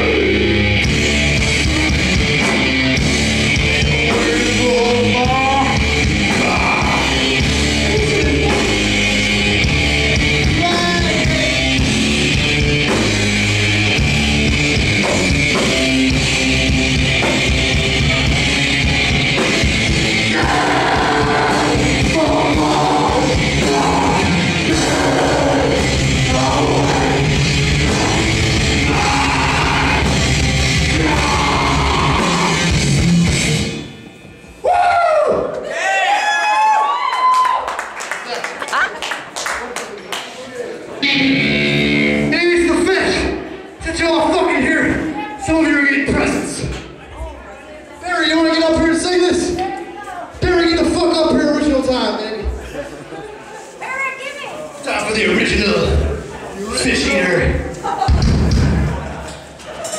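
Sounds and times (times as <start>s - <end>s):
rock band playing live: 0.0s - 34.5s, 41.0s - 46.8s, 55.5s - 59.3s
vocalist singing: 3.8s - 9.6s, 10.4s - 12.0s, 20.0s - 33.2s.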